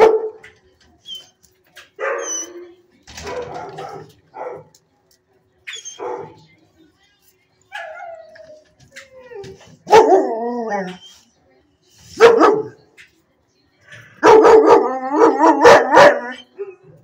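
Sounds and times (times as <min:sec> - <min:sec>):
dog barking: 0:00.0 - 0:00.5, 0:02.0 - 0:02.6, 0:03.2 - 0:04.7, 0:05.9 - 0:06.4, 0:09.8 - 0:10.3, 0:12.2 - 0:12.8, 0:14.2 - 0:16.8.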